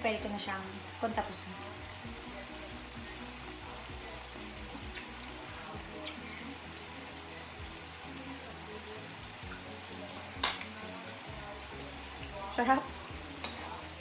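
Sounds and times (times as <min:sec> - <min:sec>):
food sizzling in a frying pan: 0:00.0 - 0:14.0.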